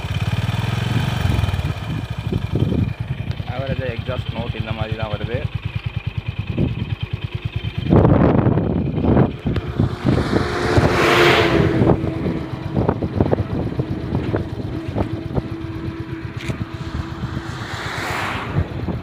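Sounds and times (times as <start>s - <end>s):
motorcycle engine idling and revving: 0.0s - 19.0s
rushing noise: 9.5s - 19.0s.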